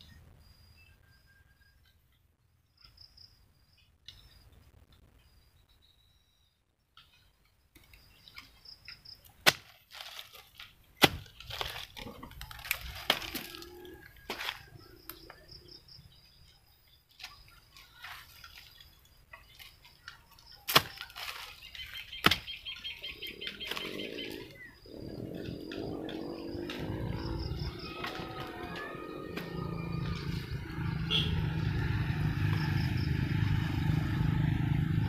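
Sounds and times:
dirt clods crumbling: 7.8s - 15.6s, 17.2s - 30.8s
hoe chopping into soil: 9.4s - 13.6s, 20.6s - 23.0s.

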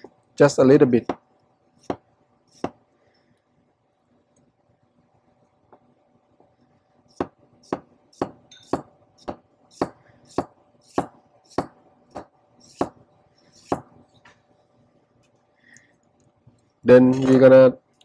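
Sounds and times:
knife chopping on wooden board: 1.8s - 2.8s, 7.2s - 13.0s, 13.6s - 14.0s.

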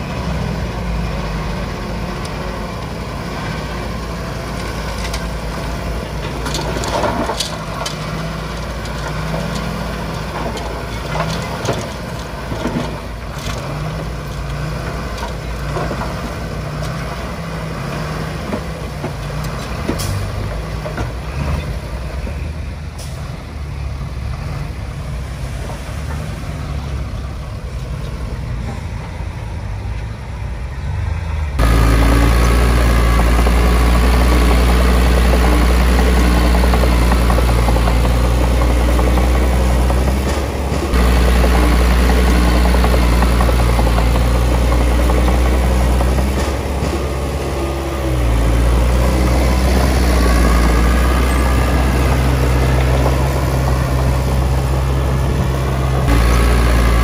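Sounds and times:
diesel engines running: 0.0s - 57.0s
low engine drone: 31.6s - 57.0s.

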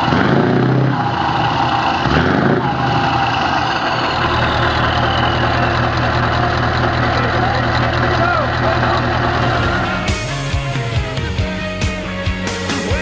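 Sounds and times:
diesel truck engine idling: 0.0s - 13.0s.

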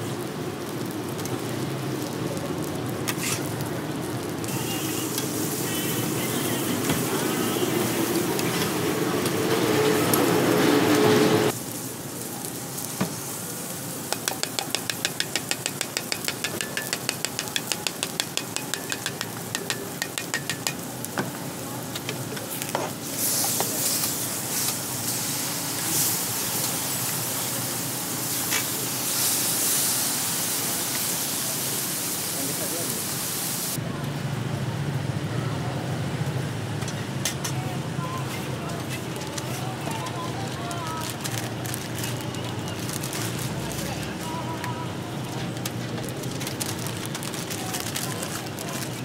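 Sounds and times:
patties sizzling on a griddle: 0.0s - 49.0s
tongs scraping and clicking on griddle: 3.0s - 3.6s, 14.0s - 20.8s
seasoning shaker rattling: 12.8s - 21.0s, 45.3s - 49.0s.

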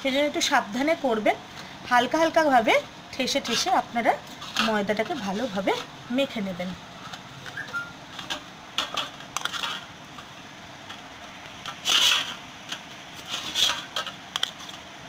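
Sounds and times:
dough scraping metal bowl: 3.3s - 5.9s, 11.8s - 12.4s, 13.2s - 14.2s.

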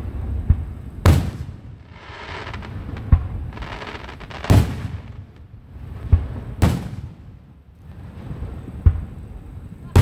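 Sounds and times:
loud sharp firework bang: 0.5s - 1.6s, 2.2s - 5.2s, 6.1s - 7.2s
firework hiss: 0.6s - 9.9s.

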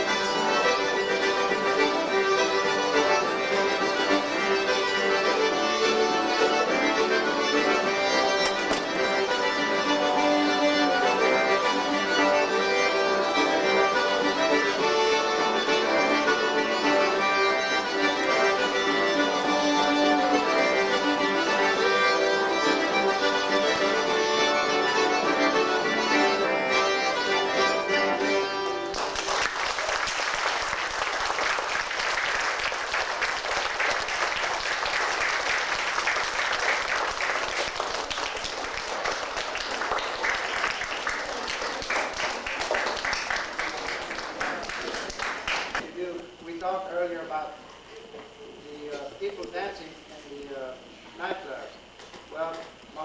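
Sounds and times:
accordion: 0.0s - 29.8s, 30.4s - 51.6s
band playing: 0.0s - 45.9s
audience applause: 28.8s - 45.8s.

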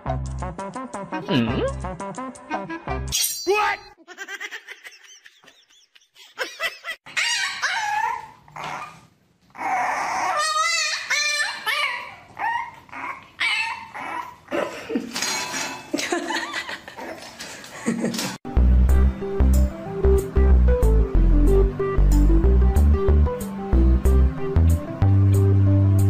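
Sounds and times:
animal whining and yelping: 7.1s - 14.6s.

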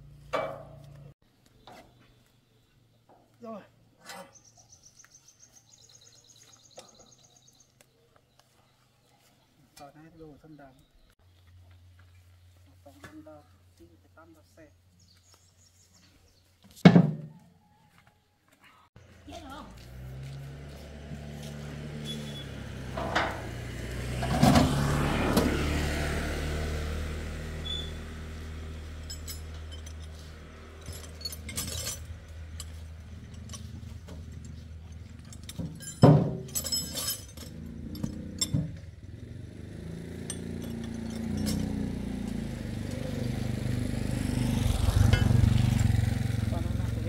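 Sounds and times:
metal clinks and knocks: 0.3s - 1.1s, 22.1s - 23.6s, 27.7s - 43.0s, 45.0s - 46.0s
engine running steadily: 19.6s - 24.7s.

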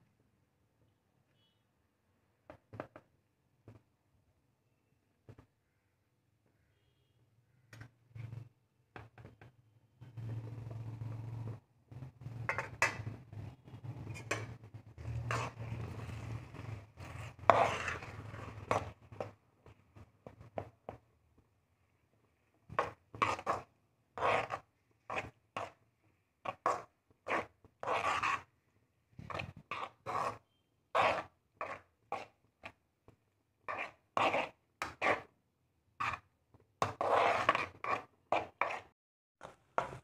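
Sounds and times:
metal spatula scraping a pan: 10.0s - 21.0s, 22.7s - 25.8s, 26.4s - 28.5s, 29.2s - 32.8s, 33.6s - 35.3s, 36.0s - 40.0s.

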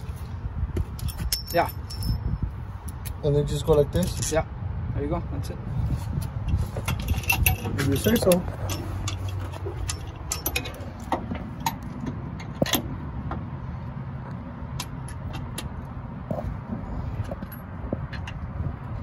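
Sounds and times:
low steady rumble: 0.0s - 19.0s
metallic clicks of tools: 6.9s - 12.9s.

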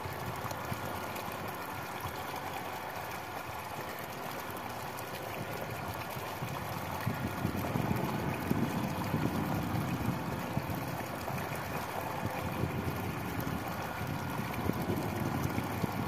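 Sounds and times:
water gushing from pipe: 0.0s - 16.0s.

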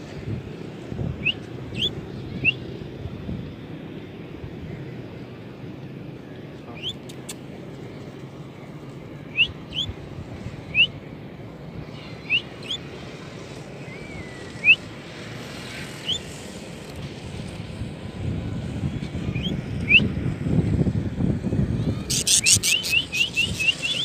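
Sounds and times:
low rumble of wind: 0.0s - 24.0s
budgerigar chirping: 22.1s - 24.0s.

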